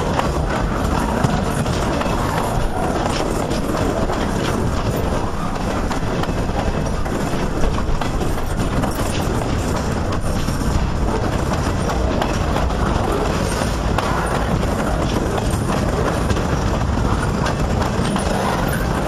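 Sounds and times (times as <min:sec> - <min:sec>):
steel wheels rumbling on rails: 0:00.0 - 0:19.0.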